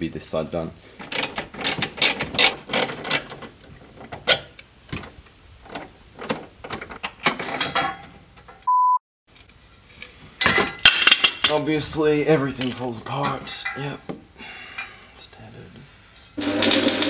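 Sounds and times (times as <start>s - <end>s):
short steady beep tone: 8.7s - 9.0s.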